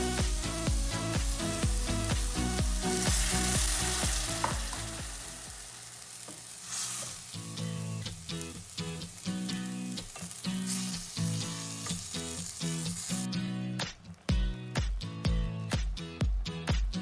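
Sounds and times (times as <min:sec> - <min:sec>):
background music with beat: 0:00.0 - 0:05.7, 0:07.6 - 0:17.0
water sizzling in hot pan: 0:00.0 - 0:13.3.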